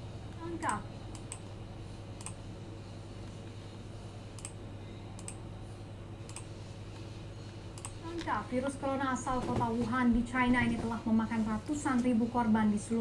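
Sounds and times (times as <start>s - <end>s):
steady low hum: 0.0s - 13.0s
computer mouse clicks: 0.6s - 1.5s, 2.2s - 2.4s, 4.4s - 4.6s, 5.2s - 5.4s, 6.3s - 6.5s, 7.8s - 8.3s.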